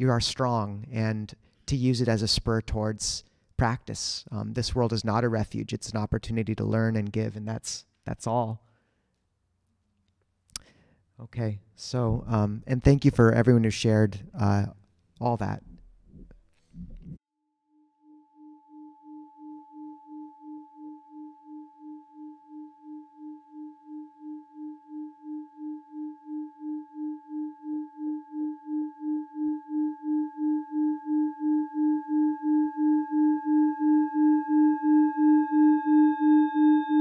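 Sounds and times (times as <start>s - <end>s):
singing bowl tone: 17.5s - 37.0s.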